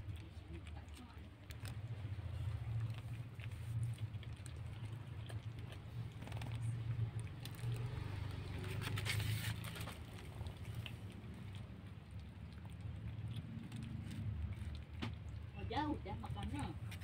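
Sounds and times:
cats crunching kibble: 0:00.0 - 0:17.0
plastic bag rustling: 0:08.7 - 0:10.1.

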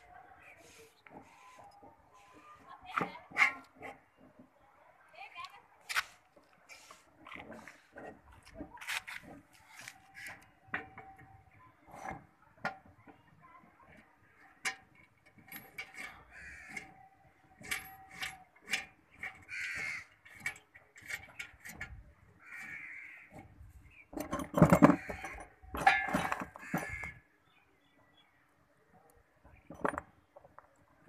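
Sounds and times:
metal bolts clinking: 0:14.6 - 0:22.1, 0:24.1 - 0:27.2
bird cawing: 0:16.3 - 0:16.9, 0:19.5 - 0:20.2, 0:22.4 - 0:23.4, 0:26.6 - 0:27.2
loose bolts rattling: 0:23.4 - 0:27.2.

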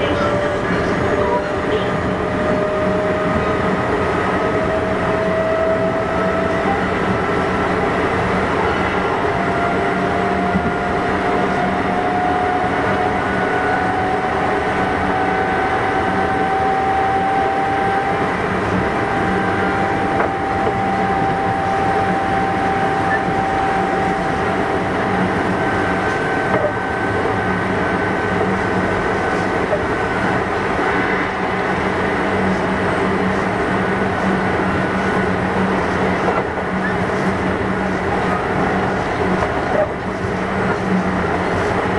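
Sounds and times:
electric train motor whine: 0:00.0 - 0:28.2
train wheels rumbling: 0:00.0 - 0:41.9.

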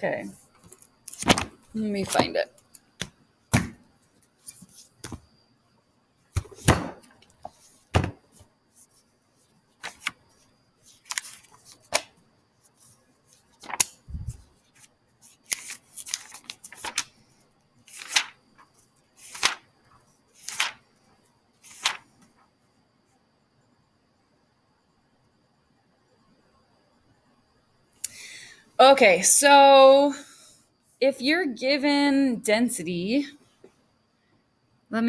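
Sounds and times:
book pages turning: 0:00.6 - 0:02.3, 0:04.4 - 0:05.2, 0:09.8 - 0:10.2, 0:10.9 - 0:12.1, 0:13.4 - 0:17.2, 0:17.9 - 0:19.7, 0:20.4 - 0:20.8, 0:21.6 - 0:22.1
handling knocks: 0:07.9 - 0:08.2.

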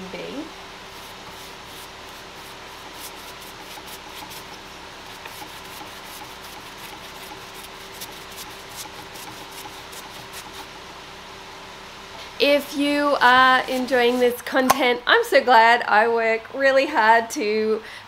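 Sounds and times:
paintbrush scratching on wood: 0:00.9 - 0:10.7, 0:13.4 - 0:14.5.

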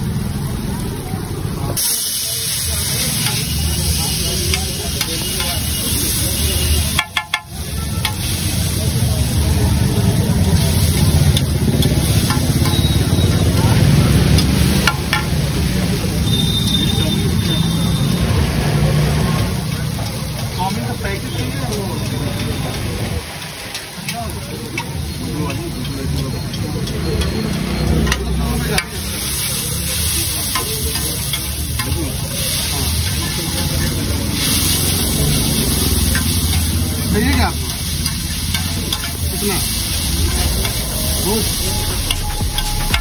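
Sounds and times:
noodles sizzling on a griddle: 0:00.0 - 0:43.0
spatula clicking on griddle: 0:06.9 - 0:08.3, 0:23.4 - 0:29.6
steady low rumble: 0:39.6 - 0:43.0.

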